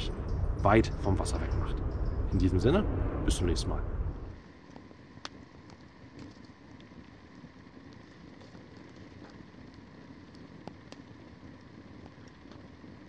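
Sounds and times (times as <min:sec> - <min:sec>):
campfire hissing: 0:00.0 - 0:13.0
fire crackles and pops: 0:00.0 - 0:13.0.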